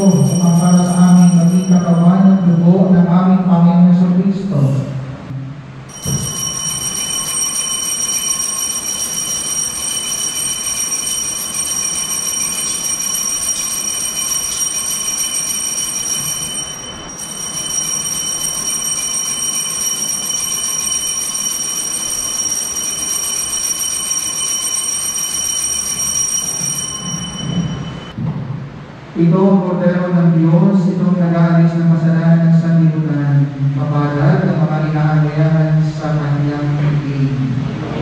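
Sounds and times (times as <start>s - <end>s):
altar bells ringing: 0.0s - 3.6s, 5.9s - 28.2s.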